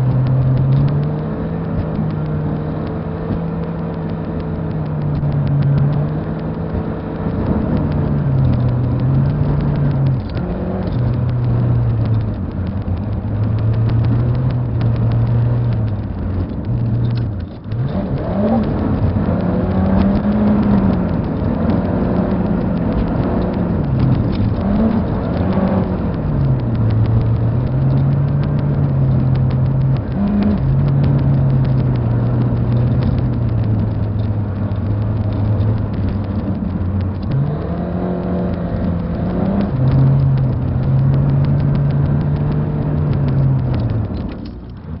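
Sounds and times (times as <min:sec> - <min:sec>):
car engine running: 0:00.0 - 0:45.0.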